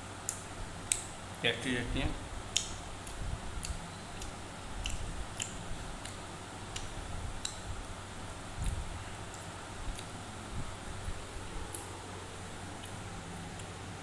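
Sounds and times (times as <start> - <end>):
person chewing food: 2.5 - 7.7, 8.5 - 10.4, 11.0 - 13.8.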